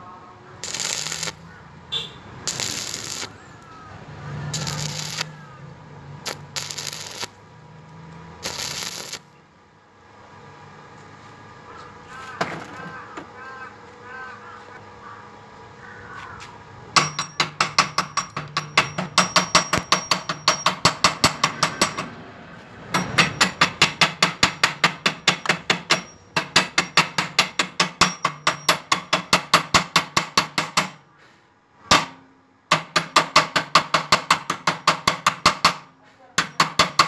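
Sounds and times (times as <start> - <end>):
chipping hammer tapping metal: 0.6 - 1.4, 2.5 - 3.4, 4.6 - 5.4, 6.3 - 7.3, 17.0 - 22.1, 23.0 - 31.0, 31.9 - 37.0.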